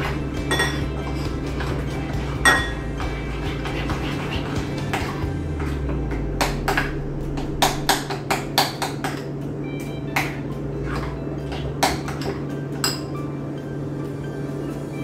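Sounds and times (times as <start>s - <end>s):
utensil clinking against bowl: 0.0s - 3.0s, 10.9s - 13.1s.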